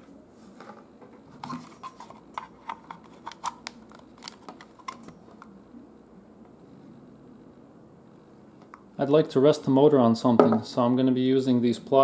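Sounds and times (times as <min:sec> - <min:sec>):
hands handling plastic adapter and clips: 0:01.4 - 0:05.5.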